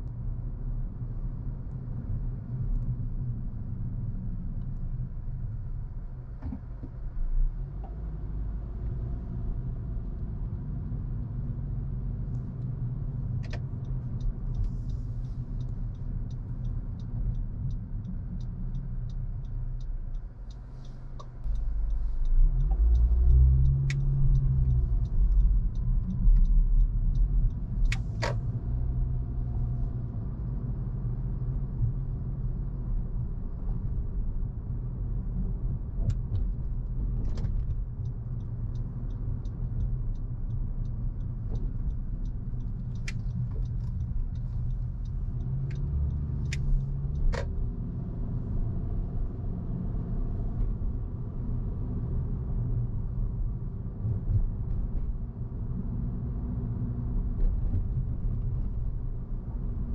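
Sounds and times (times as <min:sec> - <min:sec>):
car engine and road noise: 0:00.0 - 0:59.9
faint evenly spaced ticking: 0:13.5 - 0:28.0.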